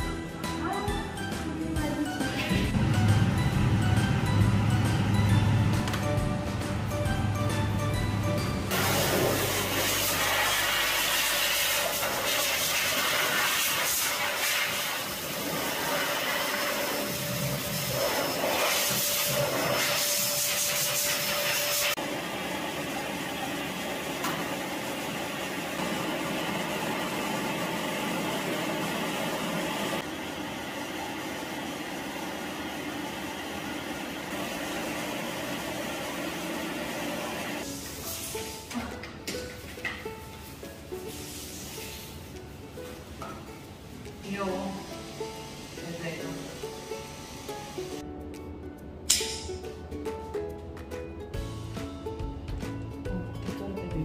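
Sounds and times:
blow dryer running: 2.0 - 38.2.

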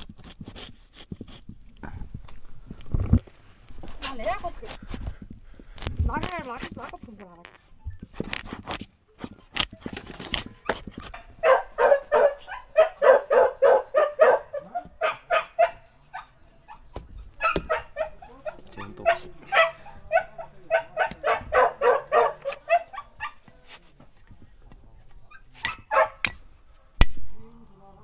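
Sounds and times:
dog barking: 10.5 - 23.6, 25.2 - 26.6.

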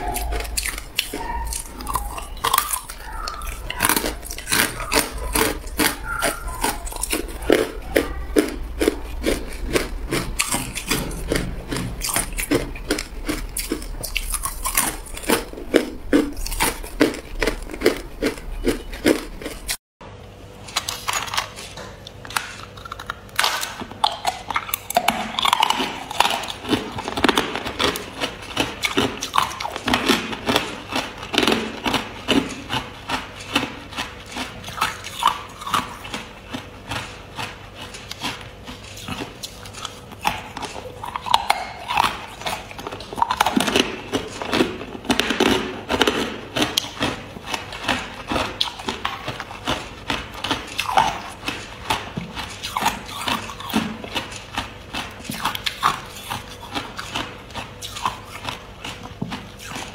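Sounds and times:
ice crunched between teeth: 0.1 - 19.8.

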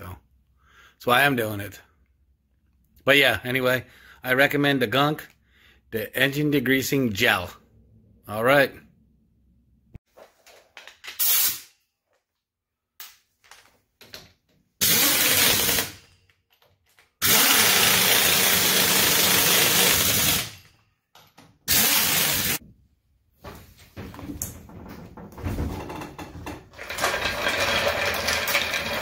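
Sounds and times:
power wrench on lug nuts: 14.8 - 16.1, 17.2 - 20.7, 21.6 - 22.6, 26.8 - 29.0.

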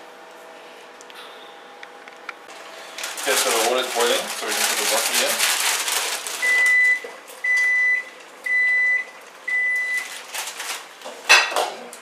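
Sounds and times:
appliance beeping: 6.3 - 10.3
kitchen clatters: 9.8 - 12.0.

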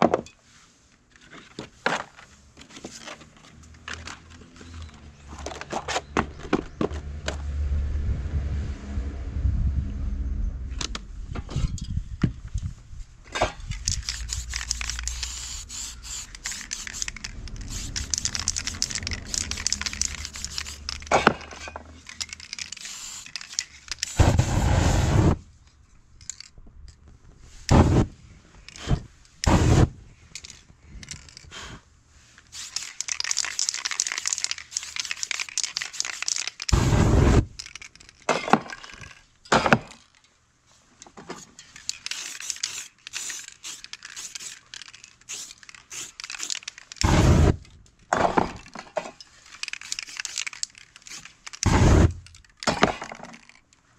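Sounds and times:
spray paint can hissing: 13.5 - 21.4, 22.0 - 25.4, 32.5 - 37.5, 41.9 - 47.6, 49.6 - 52.2.

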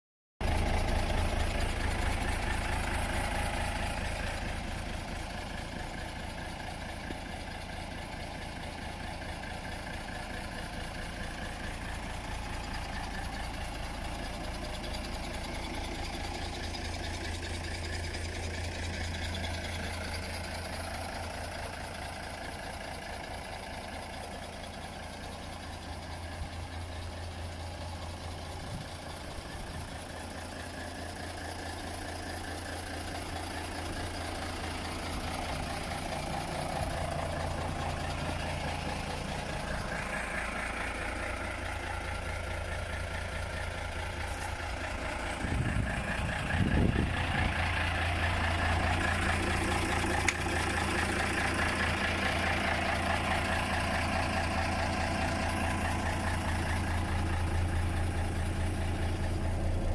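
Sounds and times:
diesel truck engine idling: 0.4 - 59.9.

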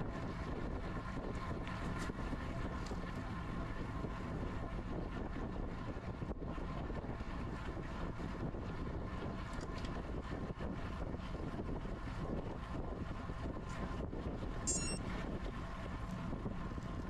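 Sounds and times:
bicycle tyre noise on road: 0.0 - 17.0
wind rushing over microphone: 0.0 - 17.0
faint steady whine: 10.2 - 17.0.

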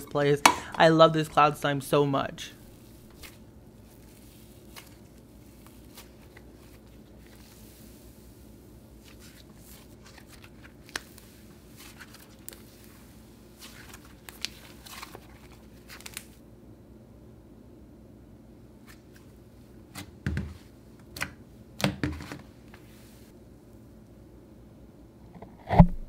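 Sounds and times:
slime squishing and crackling: 9.0 - 16.3.

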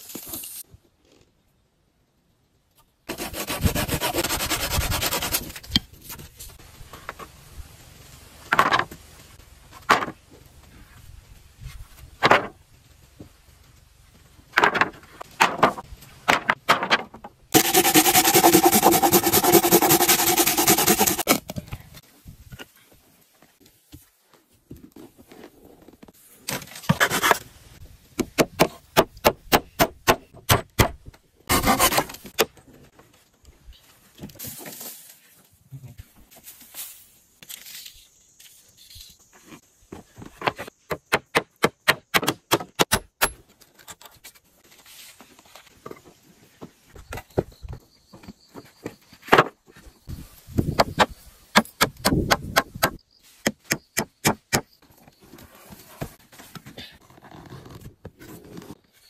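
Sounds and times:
hand tool scraping wood: 3.1 - 5.6, 17.6 - 21.4, 31.5 - 32.3.

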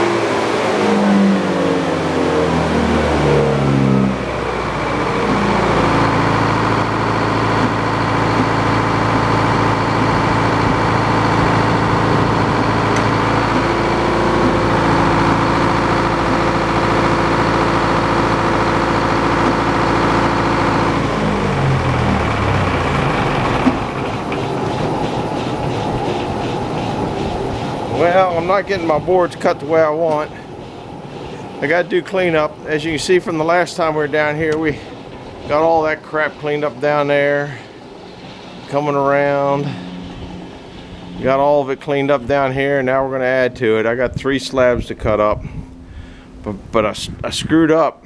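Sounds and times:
sawmill engine running: 0.0 - 47.9
circular saw blade spinning: 2.0 - 37.2.

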